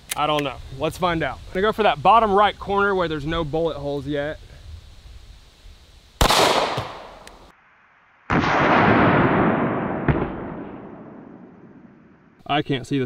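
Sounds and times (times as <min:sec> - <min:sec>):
pistol shot with ringing tail: 0:06.2 - 0:07.2.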